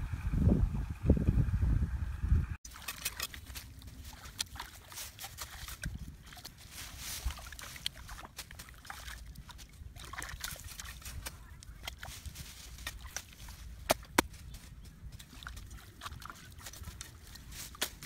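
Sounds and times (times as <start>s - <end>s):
muddy water splashing by hand: 2.7s - 18.0s.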